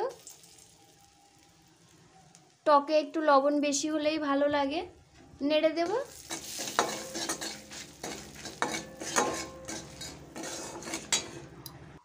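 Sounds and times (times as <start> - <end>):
oil sizzling: 0.0 - 3.1, 5.6 - 12.0
spatula scraping metal pan: 5.8 - 11.6.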